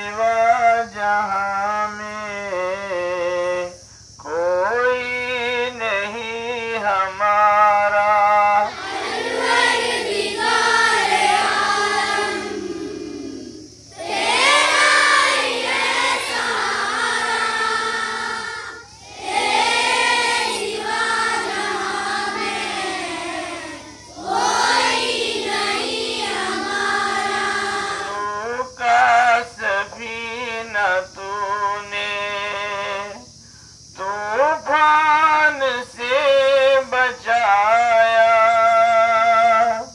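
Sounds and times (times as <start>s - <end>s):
children singing in unison: 8.6s - 29.4s.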